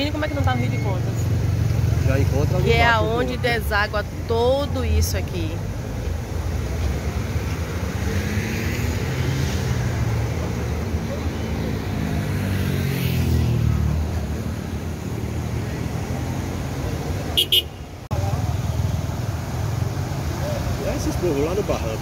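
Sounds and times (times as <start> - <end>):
road traffic: 0.0 - 22.0
river rushing: 14.0 - 22.0.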